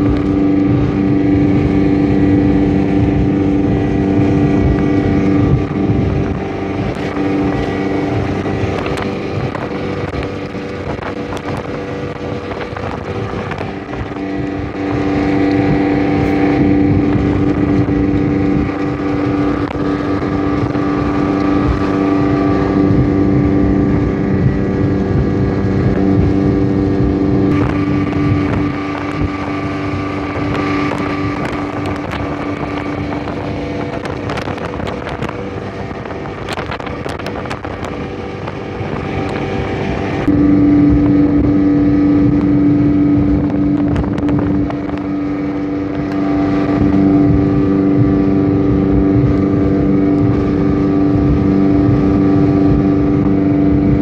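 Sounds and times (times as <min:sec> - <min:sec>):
speedboat engine running: 0:00.0 - 0:54.0
wind: 0:00.0 - 0:54.0.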